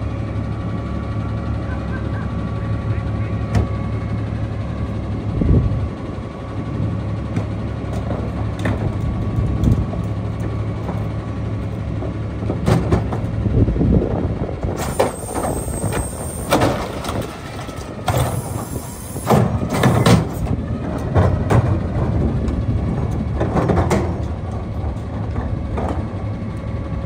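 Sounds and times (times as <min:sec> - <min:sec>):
garbage truck engine running: 0:00.0 - 0:27.0
trash carts knocking and banging: 0:07.3 - 0:11.2, 0:11.9 - 0:26.4.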